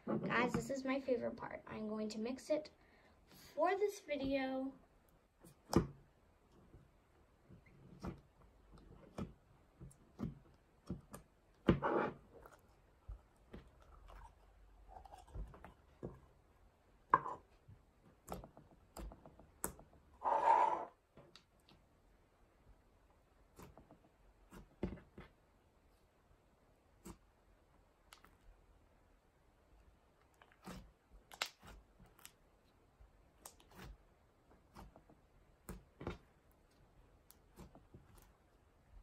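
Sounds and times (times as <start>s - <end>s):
squishy slime: 23.4s - 25.4s, 29.8s - 38.6s.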